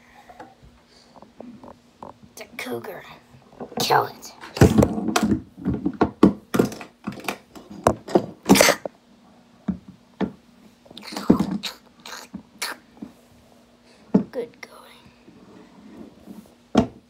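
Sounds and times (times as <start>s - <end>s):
plastic figurines knocking and scraping: 3.6s - 8.6s, 11.1s - 12.4s.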